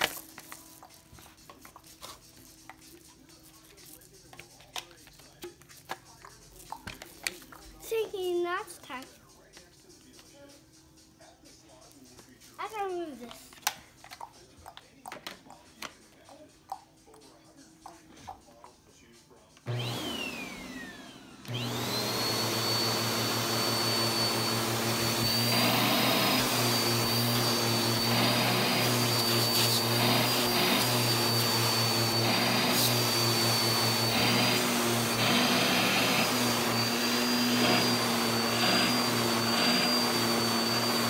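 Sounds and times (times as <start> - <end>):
vacuum cleaner motor whine: 19.6 - 41.0
vacuum nozzle suction on fabric: 19.7 - 41.0.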